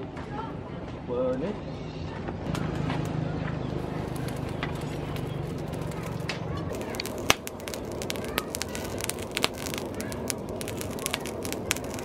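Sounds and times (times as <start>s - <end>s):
charcoal fire crackling and popping: 3.8s - 12.0s
steady rushing noise: 3.8s - 12.0s.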